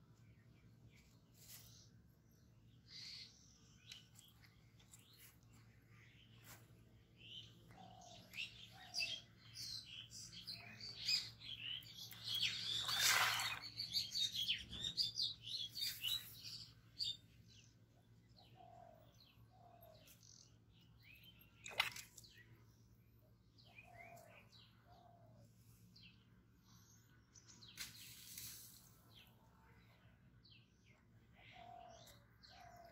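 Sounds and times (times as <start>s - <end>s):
small birds chirping: 0.0s - 32.9s.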